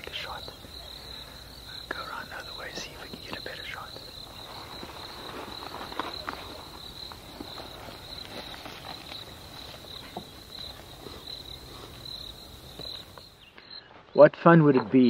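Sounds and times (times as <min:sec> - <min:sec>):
insects chirring: 0:00.0 - 0:15.0
footsteps through tall grass: 0:04.3 - 0:12.0.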